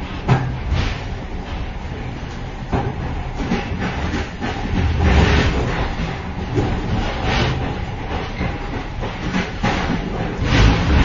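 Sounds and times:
train rumbling and clattering: 0:00.0 - 0:11.0.

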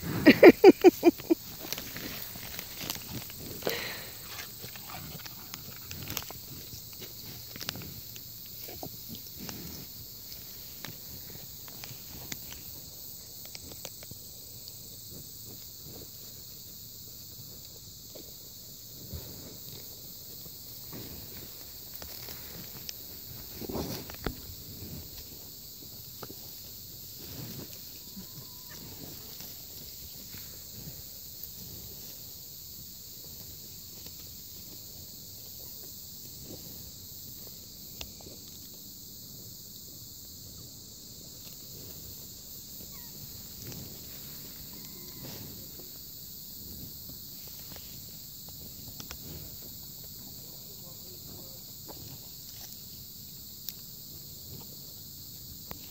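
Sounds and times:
insects chorus: 0:00.0 - 0:55.9
bull chewing grass: 0:01.4 - 0:13.0, 0:19.0 - 0:27.9.

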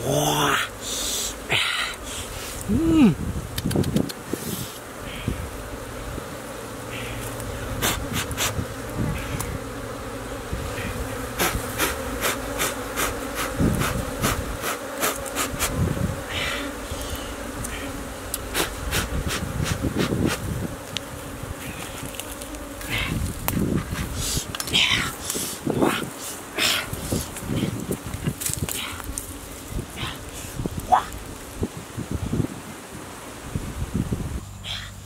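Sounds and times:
honeybees buzzing: 0:00.0 - 0:35.0
sharp clicks and crackles: 0:03.6 - 0:04.2.

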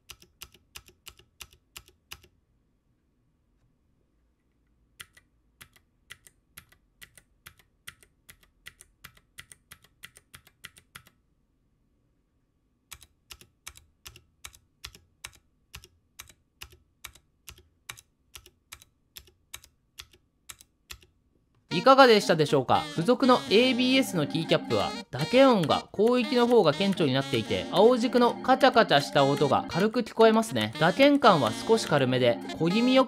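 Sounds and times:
mechanical keyboard typing: 0:00.0 - 0:02.3, 0:05.0 - 0:11.2.

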